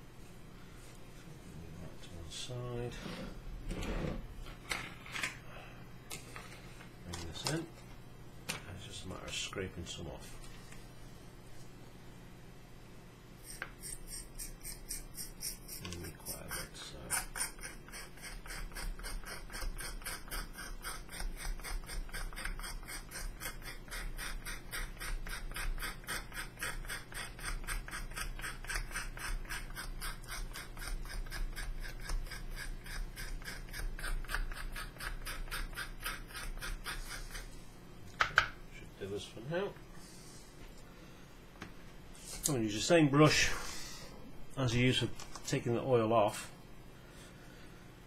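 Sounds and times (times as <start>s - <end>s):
chalk rasping strokes: 13.4s - 37.6s.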